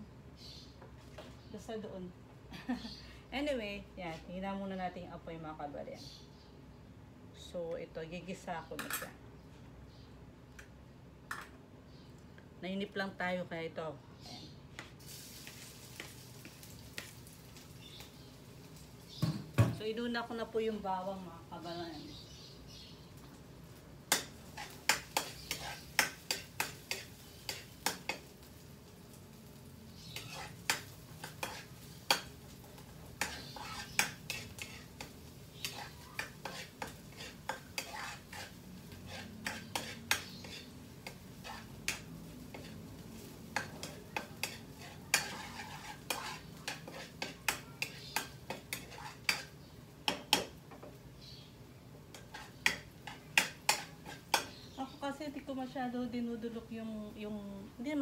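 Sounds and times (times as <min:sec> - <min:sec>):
light sizzle of oil: 0:14.7 - 0:58.0
metal spatula scraping frying pan: 0:24.1 - 0:28.2, 0:30.0 - 0:32.4, 0:33.1 - 0:49.6, 0:52.1 - 0:54.6.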